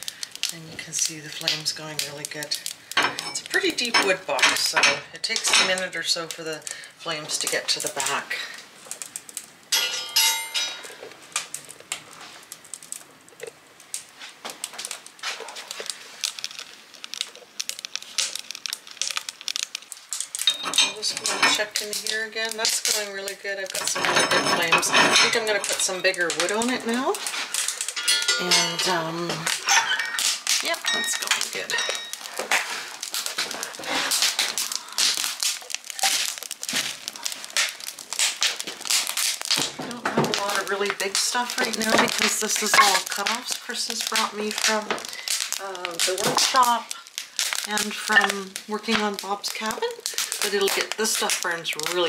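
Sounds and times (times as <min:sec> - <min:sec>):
wood fire crackling and popping: 0:00.0 - 0:52.0
metal clank ringing: 0:09.8 - 0:10.8, 0:28.0 - 0:28.9.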